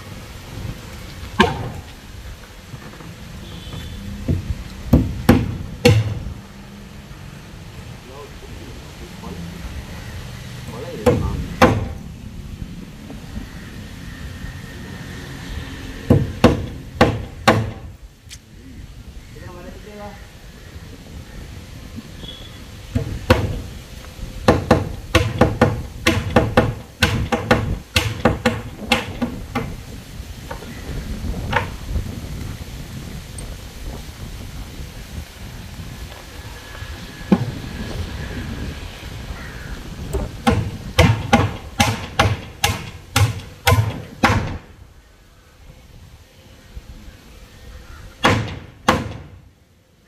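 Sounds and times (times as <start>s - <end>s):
hammer striking wooden boards: 1.4s - 1.9s, 4.3s - 6.2s, 11.0s - 12.0s, 16.1s - 17.9s, 22.9s - 23.6s, 24.4s - 29.8s, 40.4s - 44.7s, 48.2s - 49.4s.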